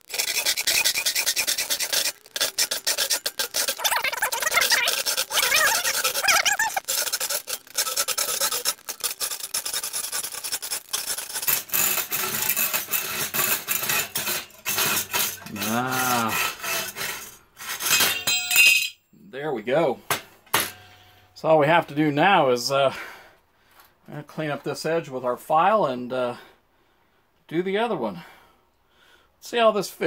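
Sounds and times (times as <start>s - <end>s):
hacksaw cutting metal: 0.0s - 18.6s.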